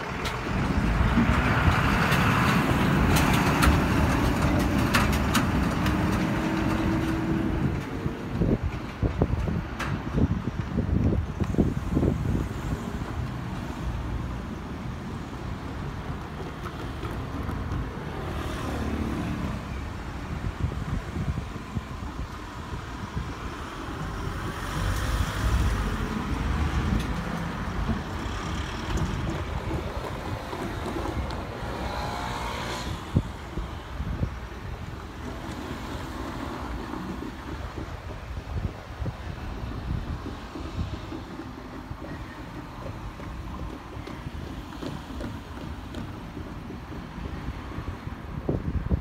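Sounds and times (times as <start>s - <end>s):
passing vehicles rumbling: 0.0s - 49.0s
vehicle whine: 0.0s - 49.0s.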